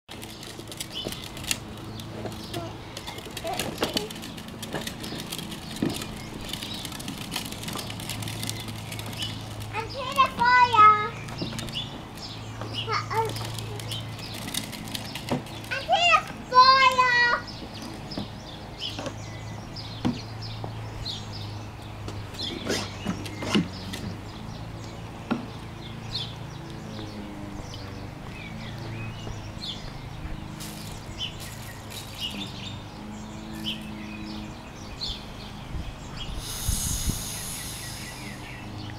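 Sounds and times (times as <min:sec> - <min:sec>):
birds chirping: 0:00.1 - 0:38.9.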